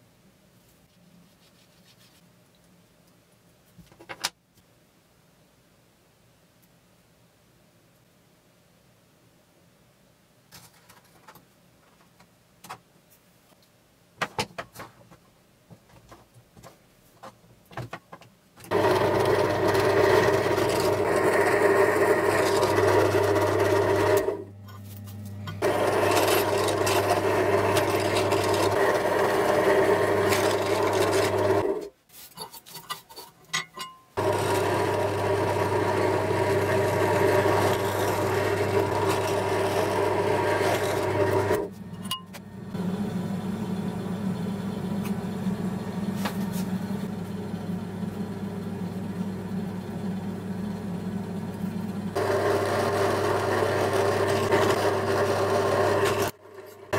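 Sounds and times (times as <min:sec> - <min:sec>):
drill bit cutting metal: 0:18.7 - 0:24.5, 0:25.6 - 0:31.8, 0:34.2 - 0:42.2, 0:52.2 - 0:56.9
drill press motor hum: 0:18.7 - 0:31.9, 0:34.2 - 0:56.9.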